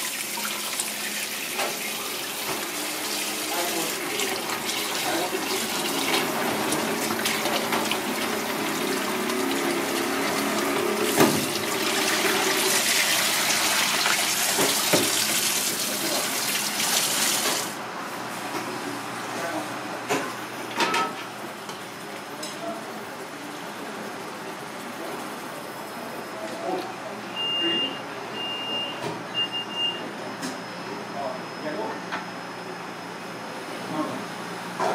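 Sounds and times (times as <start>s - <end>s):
tap running into bowl: 13.9s - 15.4s.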